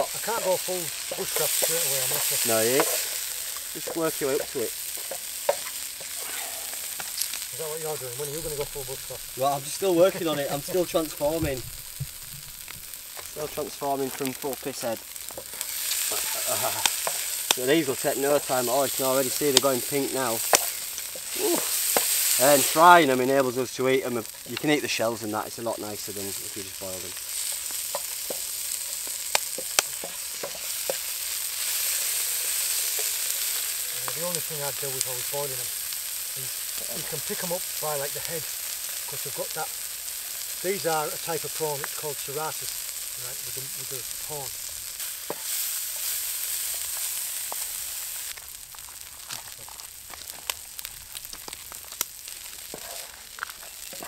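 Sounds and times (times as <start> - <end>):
wooden spoon scraping a pan: 0.0 - 23.1, 26.3 - 35.4, 43.5 - 48.2, 52.3 - 54.0
crackles and pops: 0.0 - 54.0
prawns sizzling in hot oil: 0.0 - 54.0.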